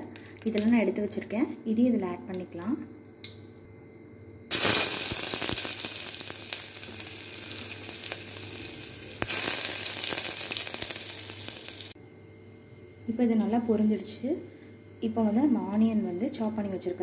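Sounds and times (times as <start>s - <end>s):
spices sizzling in oil: 4.5s - 12.0s.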